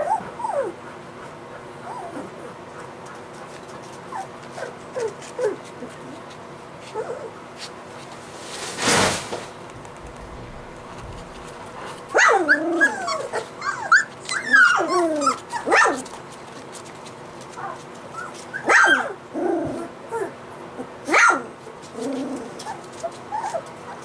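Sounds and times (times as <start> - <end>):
puppies yipping and whining: 0.0 - 3.0, 3.9 - 7.4, 11.2 - 20.4, 21.1 - 24.0
puppy sharp yelp: 12.1 - 16.1, 17.6 - 19.2, 21.1 - 21.5.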